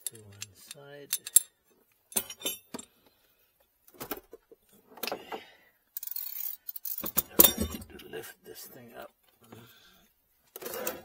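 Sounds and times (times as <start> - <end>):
metallic tool clicks: 0.0 - 1.5.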